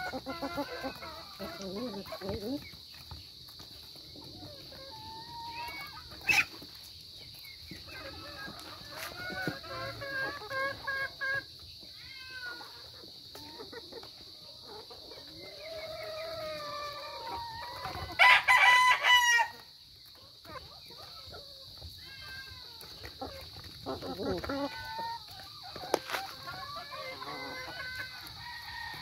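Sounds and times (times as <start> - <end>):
chickens clucking: 0.0 - 29.0
rooster crowing: 16.0 - 19.6, 26.1 - 29.0.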